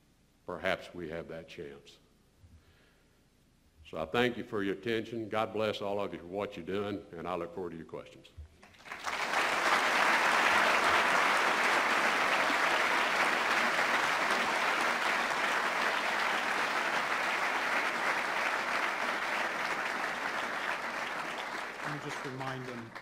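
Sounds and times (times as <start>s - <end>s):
audience applauding: 8.6s - 23.0s.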